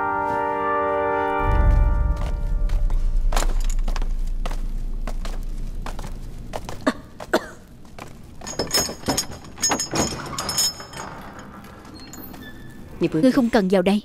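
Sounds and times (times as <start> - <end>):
low drone: 1.0 - 7.2
footsteps: 1.3 - 9.6
metal clattering and jingling: 3.2 - 4.4, 8.0 - 12.9.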